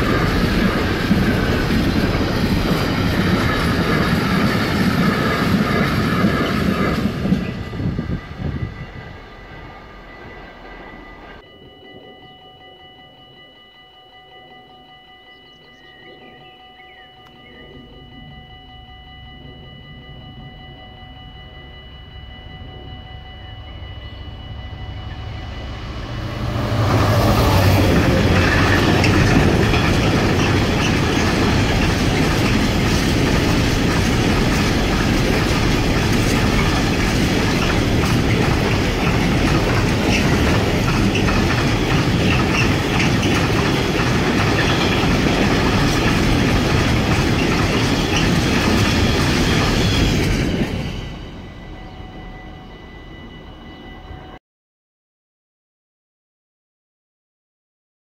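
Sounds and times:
freight train passing: 0:00.0 - 0:54.4.

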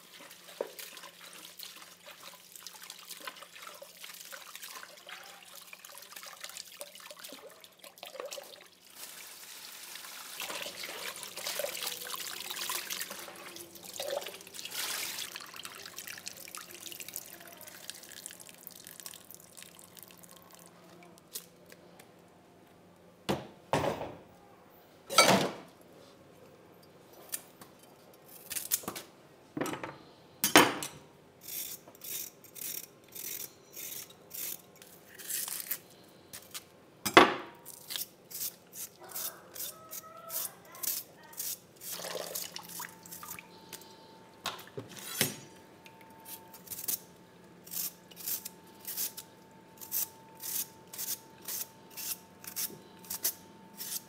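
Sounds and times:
knife scraping vegetable peel: 0:31.4 - 0:36.6, 0:37.7 - 0:42.0, 0:47.6 - 0:54.0.

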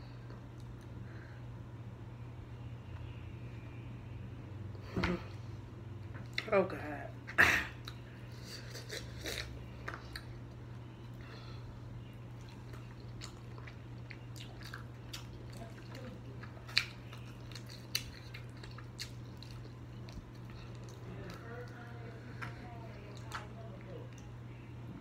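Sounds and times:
steady low hum: 0:00.0 - 0:25.0
person chewing: 0:07.8 - 0:24.3.

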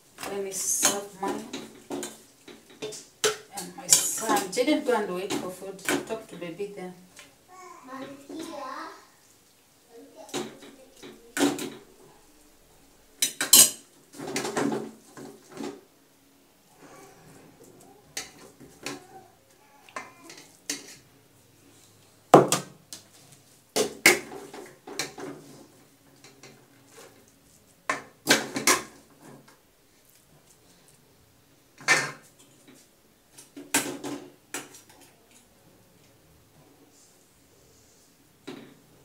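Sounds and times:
metal spoon scraping a pot: 0:20.2 - 0:21.1.

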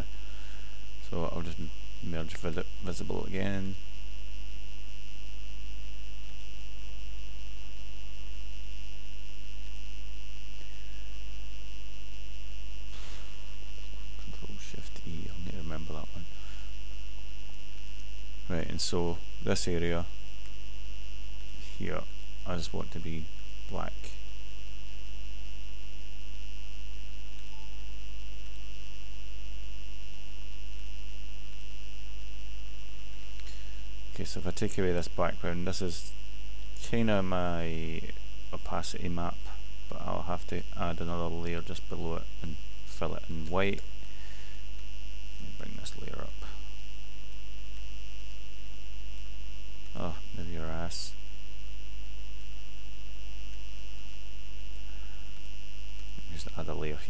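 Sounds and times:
electrical mains hum: 0:00.0 - 0:57.0
high whine: 0:00.0 - 0:57.0
person speaking: 0:01.0 - 0:03.8, 0:12.9 - 0:16.6, 0:18.4 - 0:20.2, 0:21.6 - 0:24.3, 0:36.8 - 0:43.9, 0:45.4 - 0:46.7, 0:49.9 - 0:51.2, 0:56.2 - 0:57.0.

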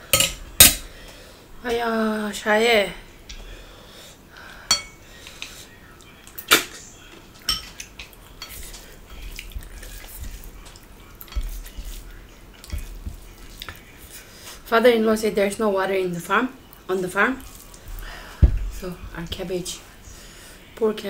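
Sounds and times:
clinks against a ceramic bowl: 0:00.2 - 0:00.8, 0:04.7 - 0:05.0.

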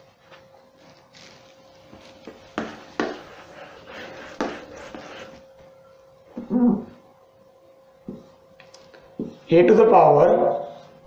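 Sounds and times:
faint steady hum: 0:00.0 - 0:11.0
duster rubbing on whiteboard: 0:01.9 - 0:05.5.

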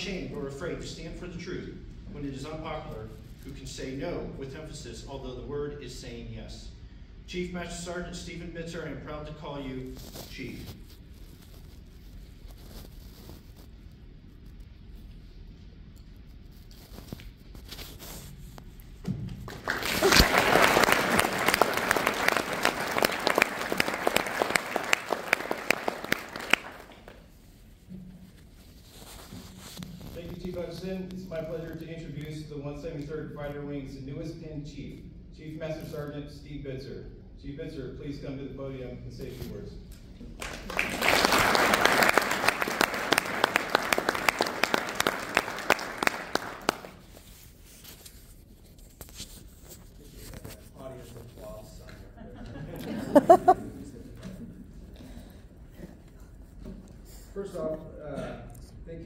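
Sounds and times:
close sharp claps: 0:19.3 - 0:27.3, 0:40.4 - 0:47.2
audience applauding: 0:19.4 - 0:27.3, 0:40.4 - 0:47.1.

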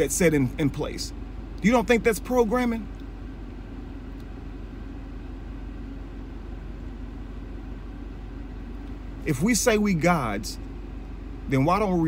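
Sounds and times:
car interior engine hum: 0:00.0 - 0:12.0.

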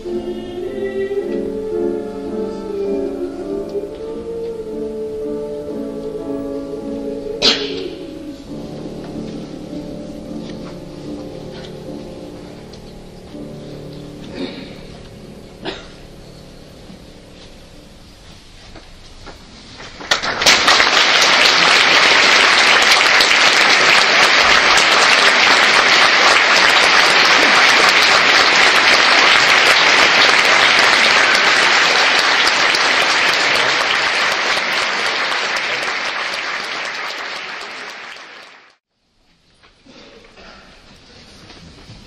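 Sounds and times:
audience applauding: 0:20.0 - 0:38.8.

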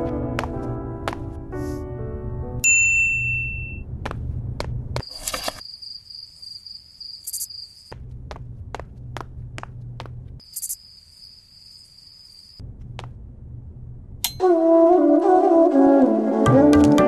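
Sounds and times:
footsteps on hard floor: 0:00.0 - 0:01.4, 0:07.9 - 0:10.3
crickets chirping: 0:05.0 - 0:08.0, 0:10.4 - 0:12.6
low steady hum: 0:12.6 - 0:14.9.

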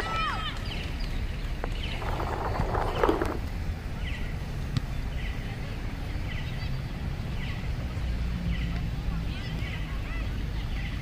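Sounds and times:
wind rumble on microphone: 0:00.0 - 0:11.0
bird chirping: 0:00.6 - 0:03.4.

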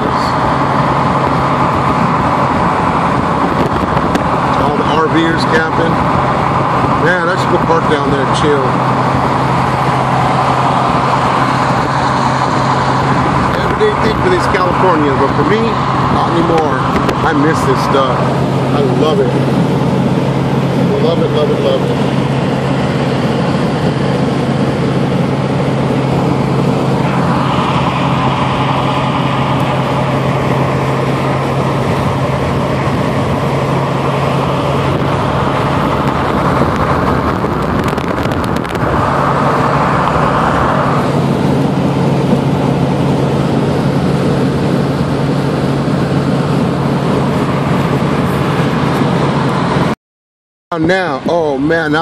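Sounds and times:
engine and tyre road noise: 0:00.0 - 0:50.0, 0:50.7 - 0:52.0
low hum: 0:00.0 - 0:50.0.

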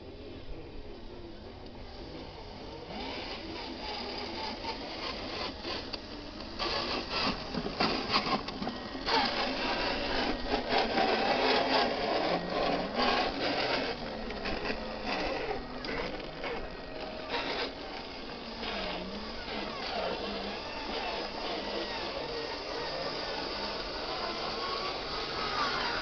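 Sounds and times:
small electric motor whining: 0:00.0 - 0:26.0
tyres crackling over dirt and stones: 0:05.9 - 0:18.8.

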